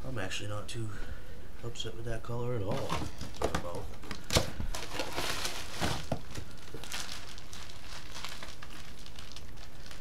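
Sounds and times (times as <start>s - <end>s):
cardboard rustling: 2.6s - 10.0s
plastic bags crinkling: 2.7s - 10.0s.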